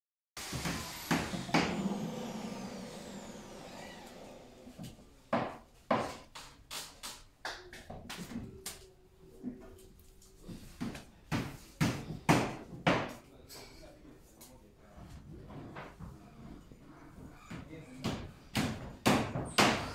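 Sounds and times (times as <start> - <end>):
sharp workshop knocks: 0.4 - 2.0, 5.3 - 7.1, 10.8 - 13.3, 18.0 - 19.9.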